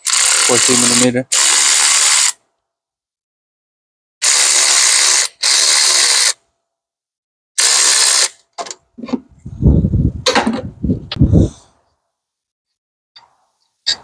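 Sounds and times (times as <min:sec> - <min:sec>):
cordless power wrench bursts: 0:00.0 - 0:02.4, 0:04.2 - 0:06.4, 0:07.6 - 0:08.4
metallic clanks and knocks: 0:10.2 - 0:10.7.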